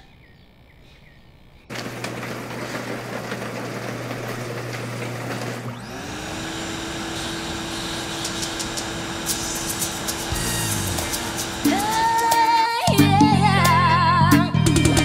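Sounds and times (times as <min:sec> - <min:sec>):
motor whining: 0:01.7 - 0:12.5
shutter motor humming: 0:01.7 - 0:12.6.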